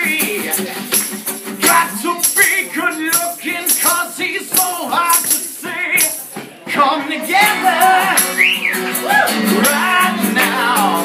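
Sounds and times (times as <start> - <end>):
hand shaker rattling: 0.0 - 6.3, 7.2 - 8.7
man singing: 0.0 - 11.0
strummed acoustic guitar: 0.0 - 11.0.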